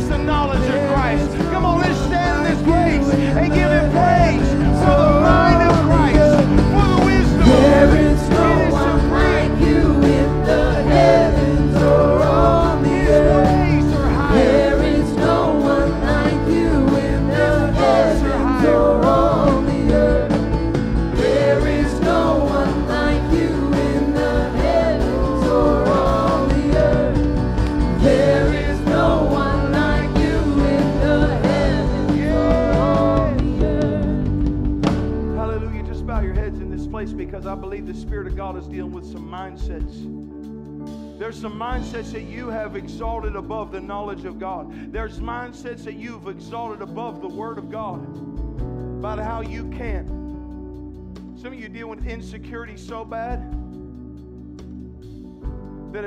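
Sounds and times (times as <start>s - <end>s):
people singing worship music: 0.0s - 37.6s
sustained low notes: 0.0s - 40.7s
keyboard: 0.0s - 56.0s.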